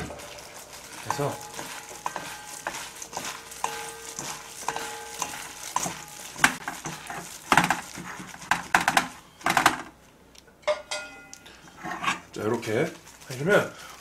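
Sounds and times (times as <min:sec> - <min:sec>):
spoon scraping metal bowl: 0:00.0 - 0:07.3
wet squishing of food: 0:00.0 - 0:08.7.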